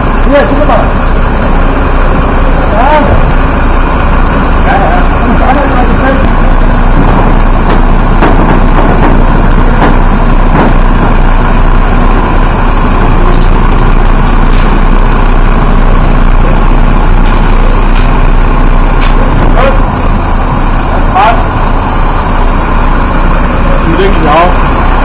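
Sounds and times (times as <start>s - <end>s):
vehicle engine running: 0.0s - 25.0s
short knocks: 6.9s - 11.2s.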